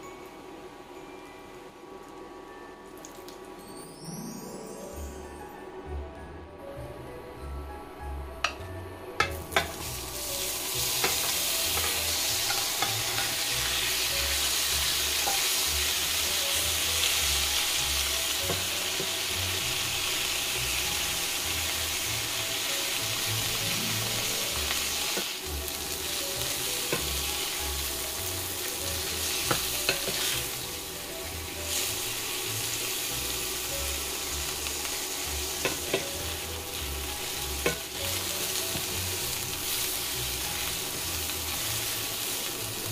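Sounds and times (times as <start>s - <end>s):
garlic sizzling in pan: 9.2s - 42.9s.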